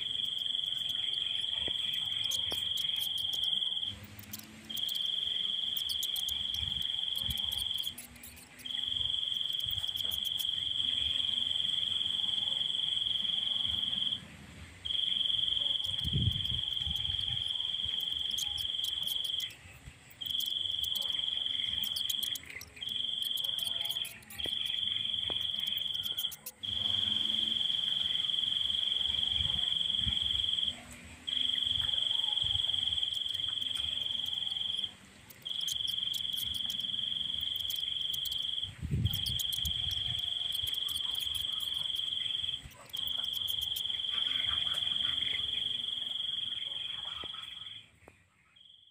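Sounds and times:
insect trilling: 0.0 - 14.2, 14.9 - 47.8
wind rumble on microphone: 16.0 - 17.4, 38.7 - 40.0.

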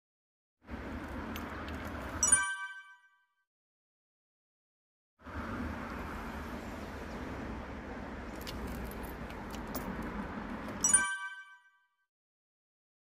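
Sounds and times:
leash clips clinking: 8.3 - 10.9.

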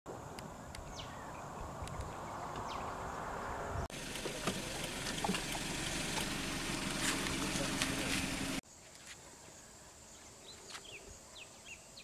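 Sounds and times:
noisy outdoor ambience: 0.1 - 12.0.

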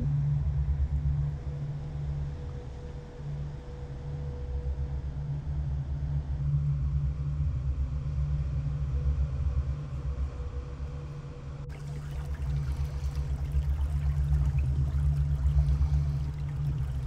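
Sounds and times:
trickling shallow water: 11.7 - 17.0
wind buffeting microphone: 11.7 - 17.0.

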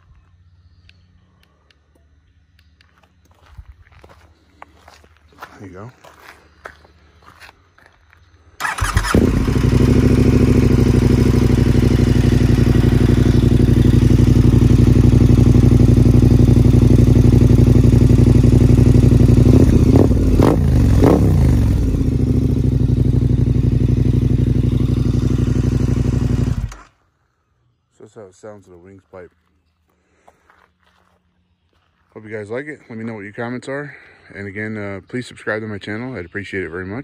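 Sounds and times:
motorcycle engine idling: 8.6 - 27.0.

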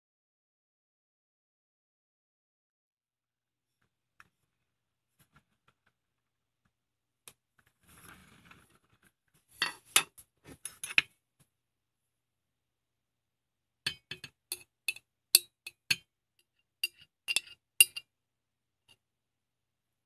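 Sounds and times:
metal spoon clinking on glass: 13.9 - 16.0, 16.8 - 18.0.

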